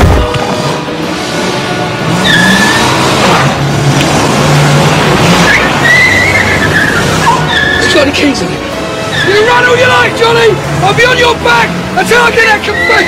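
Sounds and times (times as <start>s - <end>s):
car engine revving: 0.0s - 13.0s
tyres squealing: 2.0s - 3.7s, 5.2s - 13.0s.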